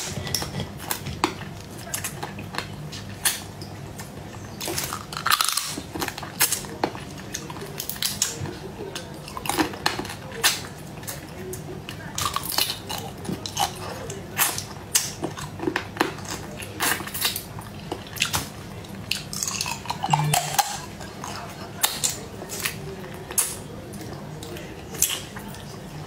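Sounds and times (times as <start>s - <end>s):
wet chewing: 0.0s - 26.0s
shell cracking and crunching: 4.6s - 8.4s.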